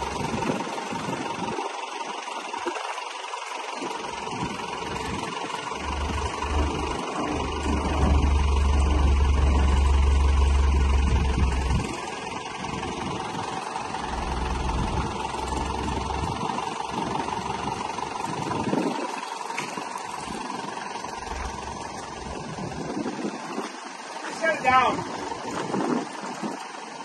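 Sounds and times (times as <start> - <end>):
diesel tractor engine idling: 0.0 - 27.0
heavy low rumble: 4.1 - 19.1, 20.0 - 23.3.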